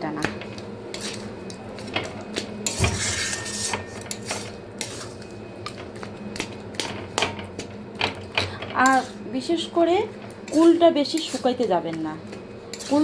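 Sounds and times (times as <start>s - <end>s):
metal spatula scraping a pan: 2.6s - 5.2s, 10.5s - 11.6s, 12.7s - 13.0s.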